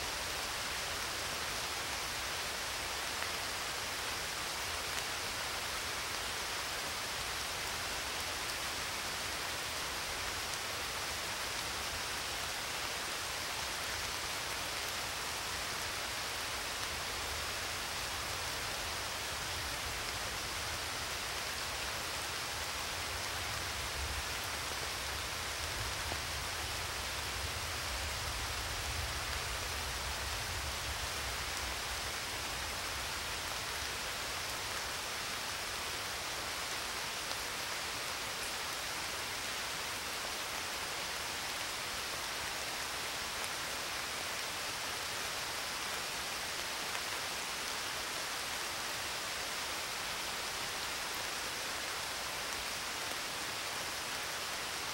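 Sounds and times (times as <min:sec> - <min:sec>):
rain-like hiss: 0:00.0 - 0:54.9.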